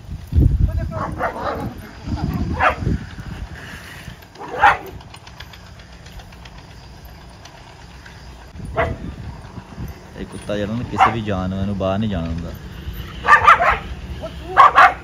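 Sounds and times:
low steady rumble: 0.0 - 15.0
dog barking: 1.0 - 1.8, 2.5 - 2.8, 4.4 - 5.0, 8.7 - 9.0, 10.9 - 11.3, 13.2 - 13.9, 14.5 - 15.0.

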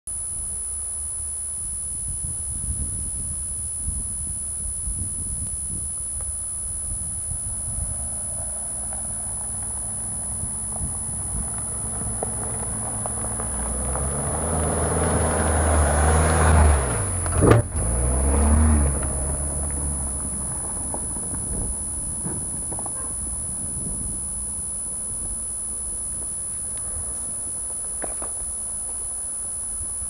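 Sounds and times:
car engine passing: 7.7 - 23.6
tyres crunching on gravel: 7.7 - 25.4, 26.1 - 29.2
loud thump: 17.3 - 17.8.

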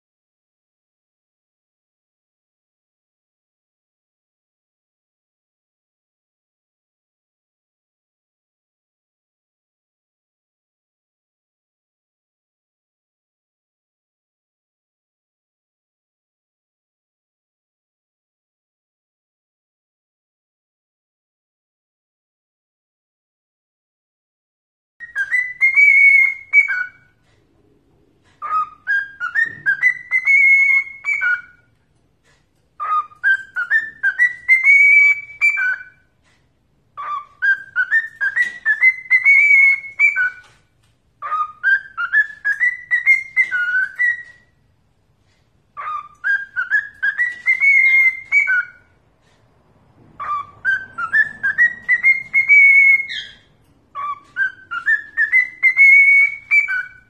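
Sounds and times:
cockatiel whistling a tune: 25.0 - 27.2, 28.3 - 31.8, 32.8 - 36.1, 37.0 - 40.6, 41.2 - 44.6, 45.7 - 49.0, 50.2 - 57.0.

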